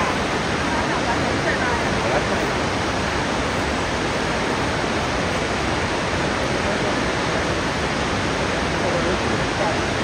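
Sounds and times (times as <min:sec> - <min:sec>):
waterfall rushing: 0:00.0 - 0:10.0.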